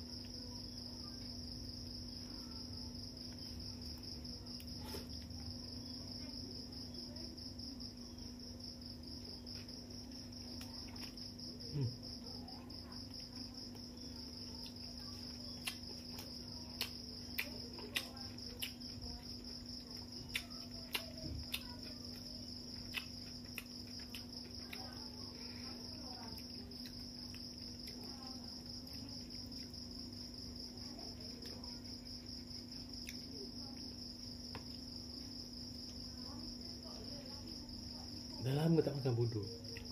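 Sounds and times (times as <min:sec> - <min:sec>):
crickets chirring: 0:00.0 - 0:39.9
eating with fingers clicks: 0:14.6 - 0:25.2, 0:26.2 - 0:29.8, 0:32.9 - 0:33.4, 0:39.6 - 0:39.9.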